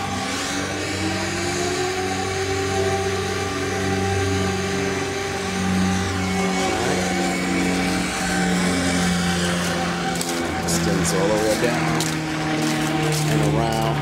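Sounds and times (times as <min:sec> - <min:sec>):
engine running with low hum: 0:00.0 - 0:14.0.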